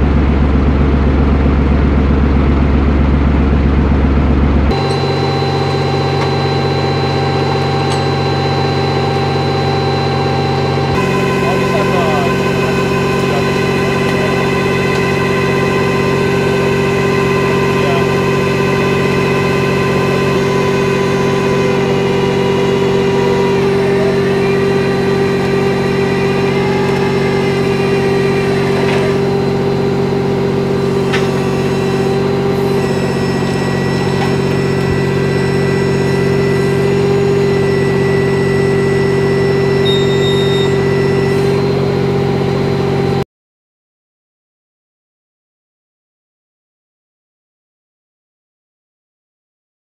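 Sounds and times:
truck engine idling: 0:00.0 - 0:43.2
faint high whine: 0:04.7 - 0:43.2.

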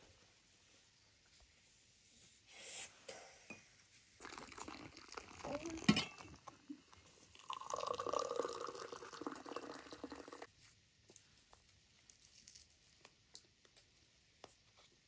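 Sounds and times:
tea pouring into glass cup: 0:04.2 - 0:10.5.

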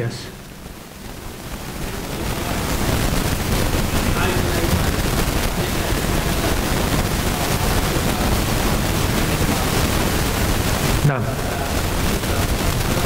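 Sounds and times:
loud steady hiss: 0:00.0 - 0:13.0.

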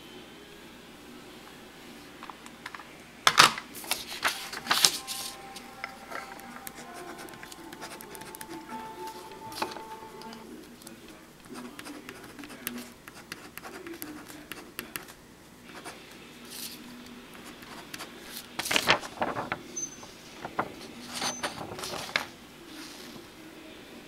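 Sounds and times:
paper rustle and knock: 0:03.4 - 0:05.4, 0:18.5 - 0:23.2
pen scratching on paper: 0:11.5 - 0:16.0.

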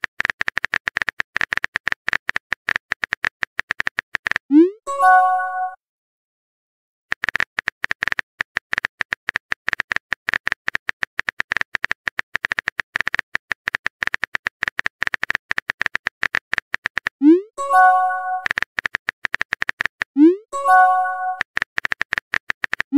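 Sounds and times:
keyboard typing clicks: 0:07.1 - 0:22.9.

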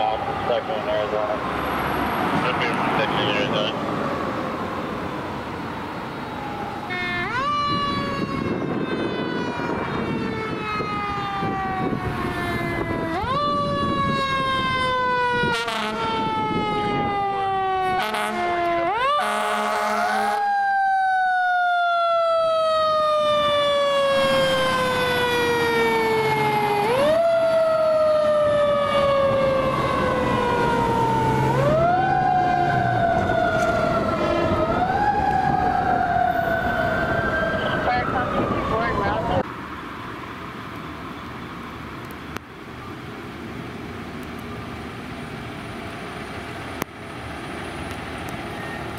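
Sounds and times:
air horn blast: 0:15.4 - 0:16.3, 0:17.8 - 0:18.6, 0:19.2 - 0:20.4, 0:34.2 - 0:34.6.

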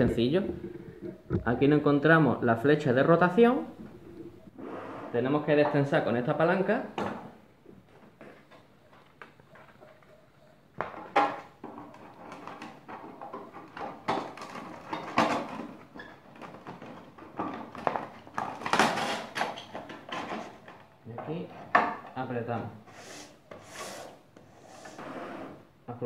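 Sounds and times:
sanding belt rustling and scraping: 0:22.9 - 0:25.6.

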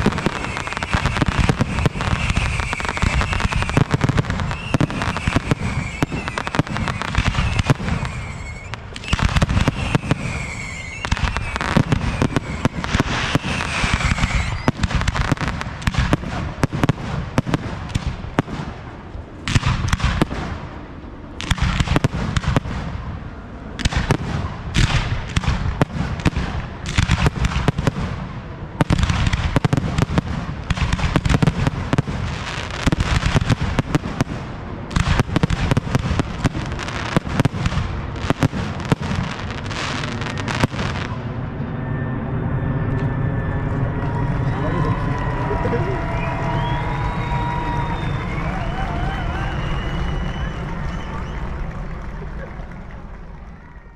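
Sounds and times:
firework launches and bursts: 0:00.0 - 0:20.8, 0:21.4 - 0:41.3
firework whistling: 0:00.0 - 0:20.8, 0:21.4 - 0:53.9.

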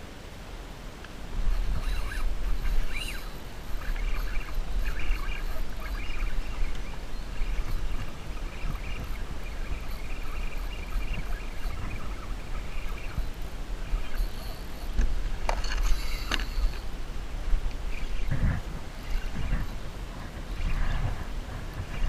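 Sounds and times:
wind buffeting microphone: 0:01.2 - 0:22.0.

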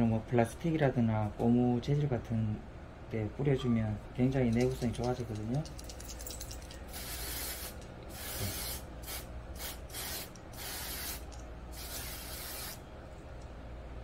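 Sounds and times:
aerosol spray can hissing: 0:06.9 - 0:12.8.

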